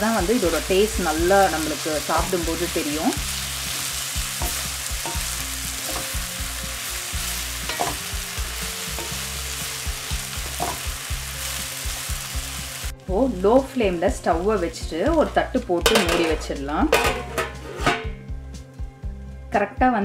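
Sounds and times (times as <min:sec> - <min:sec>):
food sizzling in oil: 0:00.0 - 0:18.2
wooden spatula scraping a pan: 0:17.0 - 0:18.1.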